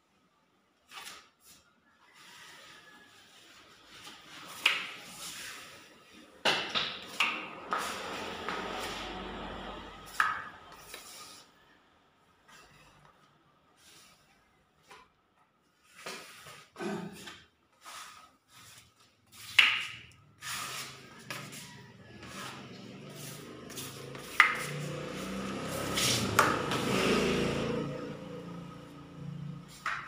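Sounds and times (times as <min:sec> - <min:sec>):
trowel scraping plaster on wall: 0:17.9 - 0:26.7.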